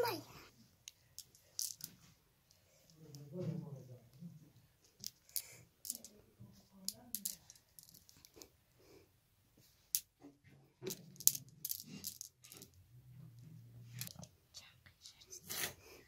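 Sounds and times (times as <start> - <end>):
glass marbles clicking: 1.2 - 2.0, 5.0 - 6.2, 6.8 - 8.4, 10.8 - 12.8.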